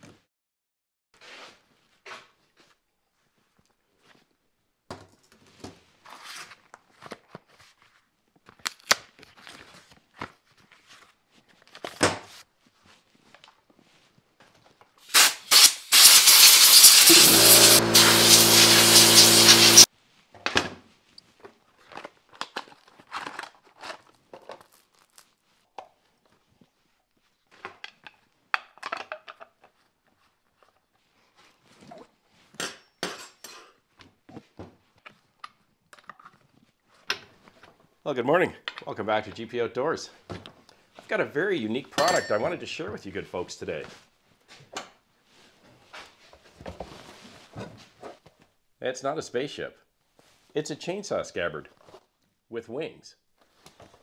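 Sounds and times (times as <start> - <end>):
compressed air hissing from nozzle: 15.1 - 19.9
air compressor motor humming: 15.5 - 19.9
clicks and knocks of chainsaw parts: 21.5 - 24.6, 27.6 - 29.8.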